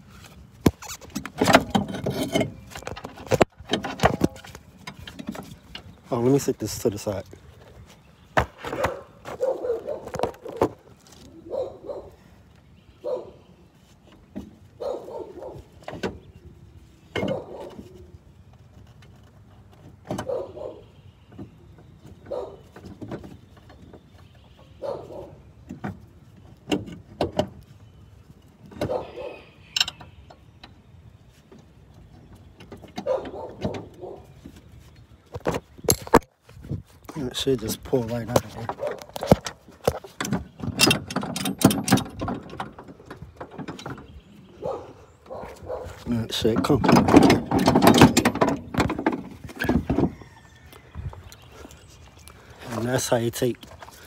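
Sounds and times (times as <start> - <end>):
metal clanks and knocks: 0.7 - 6.0, 38.2 - 44.3, 46.2 - 50.4.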